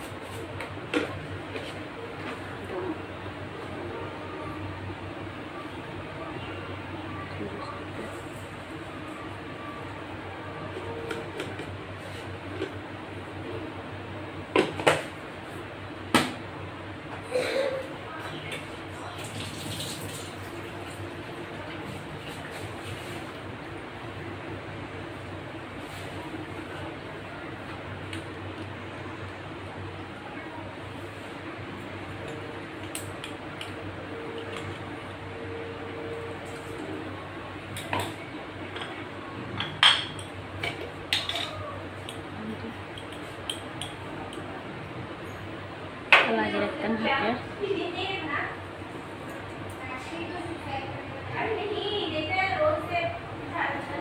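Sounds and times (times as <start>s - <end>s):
kitchen utensils clinking: 39.6s - 41.6s.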